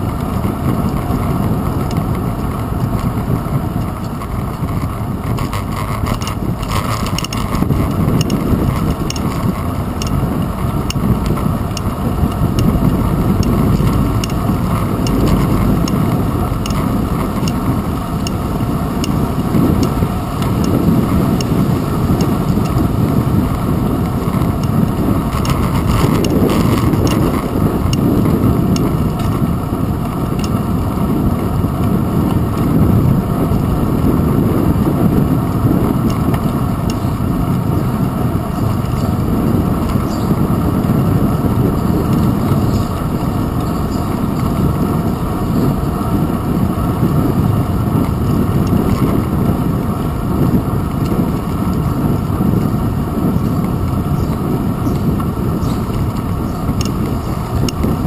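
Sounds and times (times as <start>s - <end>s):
bicycle rumbling in motion: 0.0s - 58.0s
tyres rattling over paving: 0.0s - 58.0s
wind on camera: 0.0s - 58.0s
faint regular ticking: 0.2s - 29.4s.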